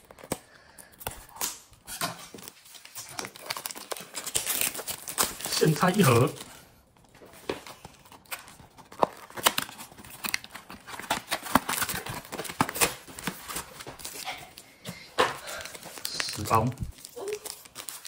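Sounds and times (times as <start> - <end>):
foil wrappers crinkling: 0.0 - 18.0
cardboard tearing: 2.3 - 6.5, 7.6 - 14.6, 15.6 - 18.0.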